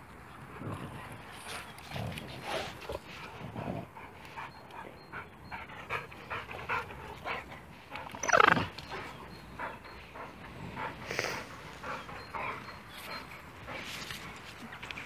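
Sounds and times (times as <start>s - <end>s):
dogs panting: 0.3s - 15.0s
dog yelping: 8.1s - 8.7s.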